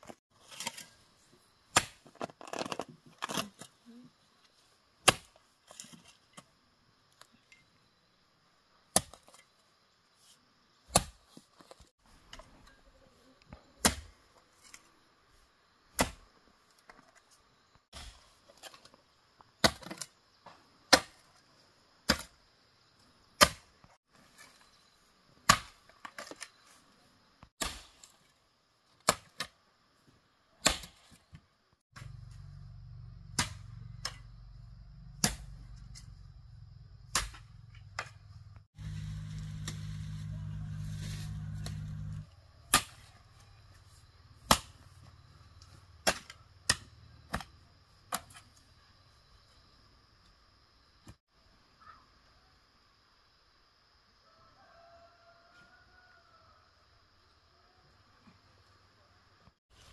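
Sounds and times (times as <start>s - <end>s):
low steady hum: 38.3s - 42.2s.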